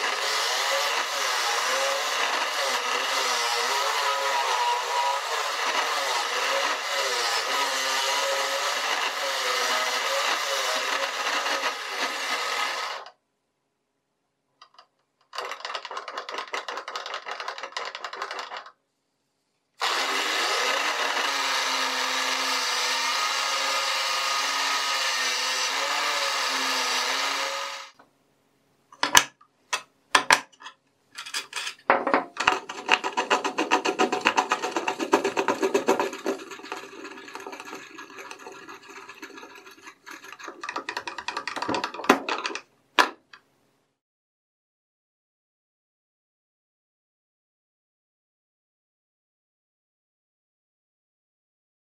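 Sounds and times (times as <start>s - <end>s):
angle grinder motor humming: 0.0s - 13.1s, 19.8s - 28.0s
rubbing and scraping: 31.2s - 42.7s.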